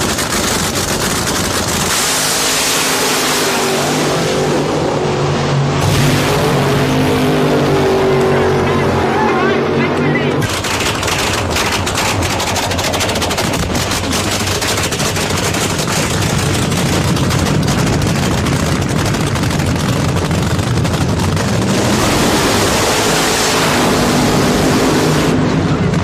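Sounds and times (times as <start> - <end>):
drag racing engine crackling rattle: 0.0 - 3.2, 10.0 - 22.8
tyre burnout roar: 0.0 - 26.0.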